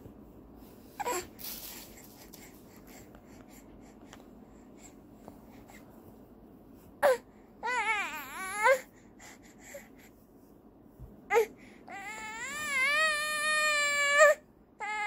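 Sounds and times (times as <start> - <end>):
baby fussing and crying: 1.0 - 3.0, 7.0 - 8.9, 11.3 - 15.0.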